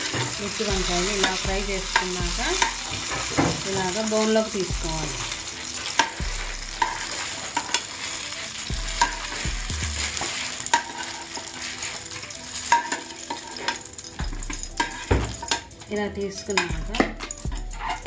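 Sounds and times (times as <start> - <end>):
oil sizzling in a pan: 0.0 - 18.0
metal spatula scraping a pan: 5.2 - 15.7, 16.4 - 18.0.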